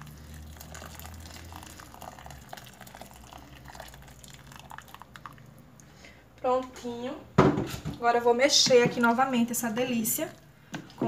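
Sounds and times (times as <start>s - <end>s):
water pouring into pot: 0.0s - 5.9s.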